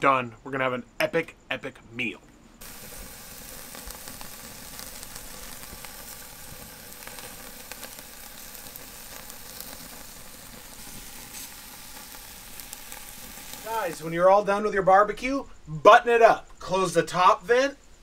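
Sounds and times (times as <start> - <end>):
steak sizzling over charcoal: 2.6 - 14.8.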